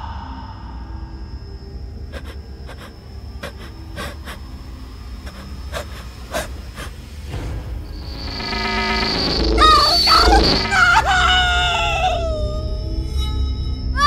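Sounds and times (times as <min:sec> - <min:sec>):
low rumbling drone: 0:00.0 - 0:14.0
thin high whine: 0:00.0 - 0:14.0
frightened gasps: 0:02.1 - 0:04.5, 0:05.2 - 0:07.1.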